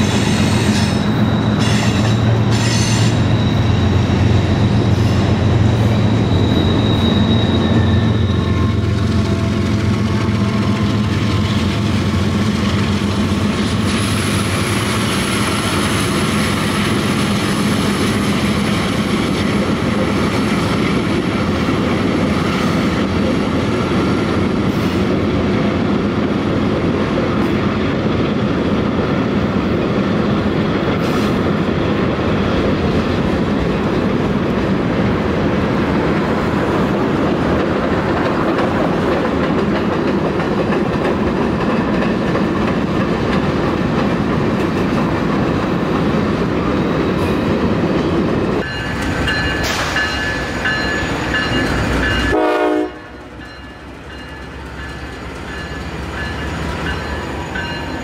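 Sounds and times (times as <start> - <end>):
locomotive horn: 0.0 - 3.4, 52.2 - 53.3
diesel locomotives: 0.0 - 58.0
train wheels clacking: 36.1 - 58.0.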